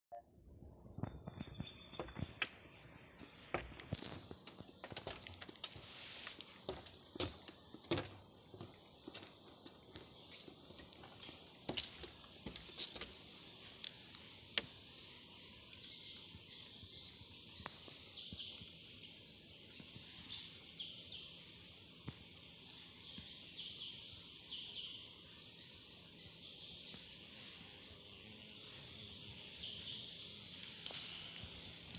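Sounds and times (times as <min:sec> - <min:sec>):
insect high-pitched drone: 0:00.1 - 0:31.9
insects chirping: 0:00.1 - 0:31.9
footsteps on boardwalk planks: 0:03.2 - 0:14.8.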